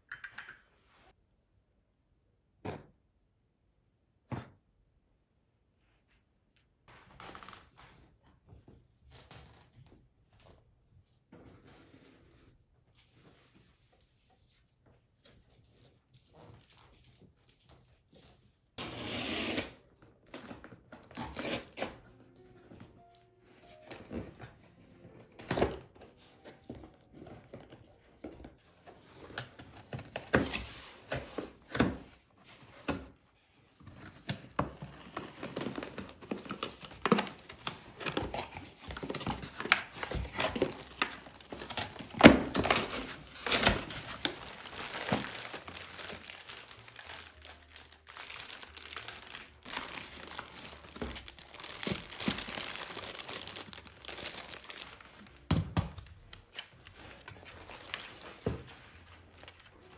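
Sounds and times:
cardboard and foam rustling: 0:06.9 - 0:59.9
plastic wrap crinkling: 0:33.7 - 0:59.9.

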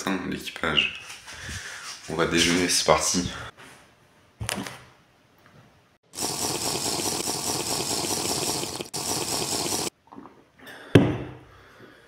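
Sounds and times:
liquid rushing and gulping: 0:06.2 - 0:09.9.

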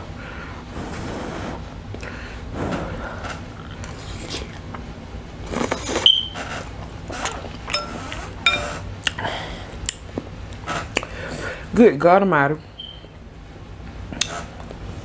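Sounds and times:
noodles being slurped: 0:05.4 - 0:08.3.

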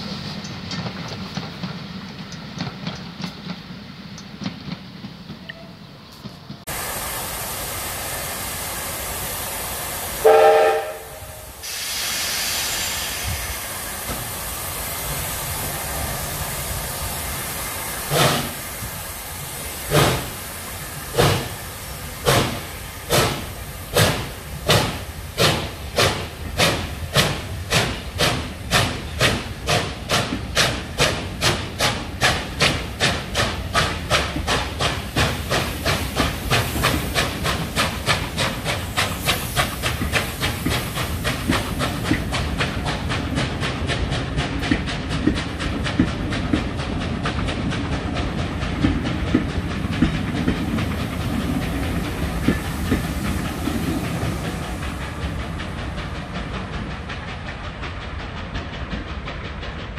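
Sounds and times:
wheels clicking over rail joints: 0:00.0 - 0:06.7, 0:21.1 - 0:59.9
steam locomotive exhaust beats: 0:00.0 - 0:59.9.

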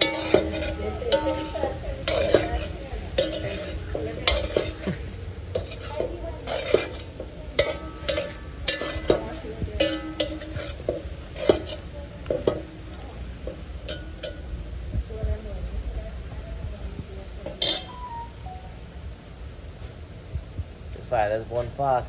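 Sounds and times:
spoon knocking and scraping metal pot: 0:00.0 - 0:14.6, 0:17.4 - 0:18.1.

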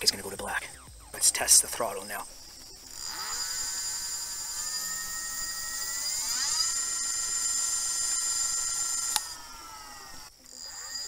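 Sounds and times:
electric motor whining: 0:02.2 - 0:11.0.

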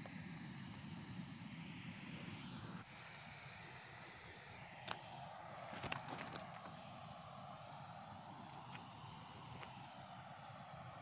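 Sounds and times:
high-pitched insect drone: 0:02.8 - 0:11.0.

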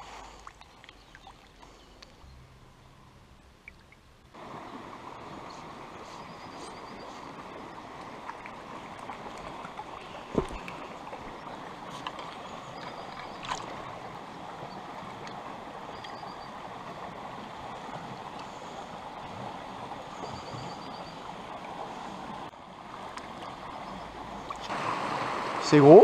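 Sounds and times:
stream running over gravel: 0:03.6 - 0:26.0.

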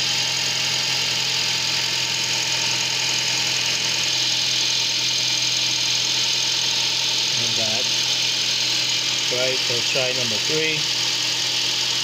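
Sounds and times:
car engine idling: 0:03.1 - 0:12.0.

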